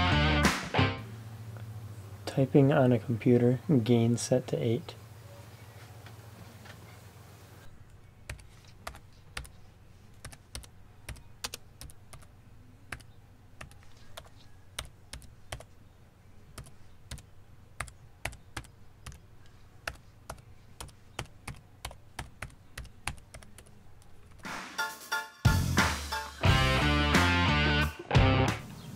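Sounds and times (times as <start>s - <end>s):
faint low hum: 1.0s - 24.4s
laptop keyboard typing: 8.2s - 12.3s, 12.9s - 15.8s, 16.5s - 24.5s.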